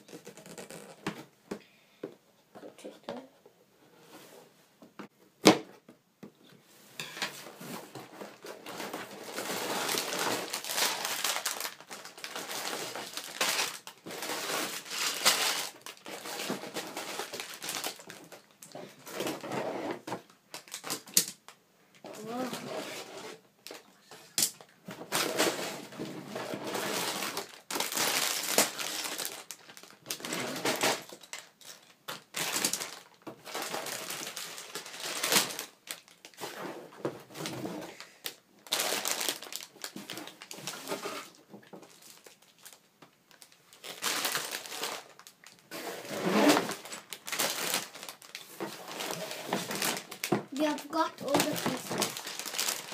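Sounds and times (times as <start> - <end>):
plastic bags crinkling: 7.8 - 19.5, 20.5 - 21.4, 26.4 - 36.4, 37.3 - 52.9.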